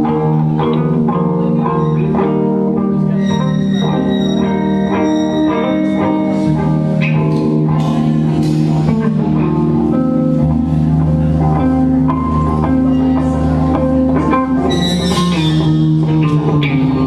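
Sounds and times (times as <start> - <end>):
electric guitar ringing: 0.0 - 17.0
drums: 6.1 - 17.0.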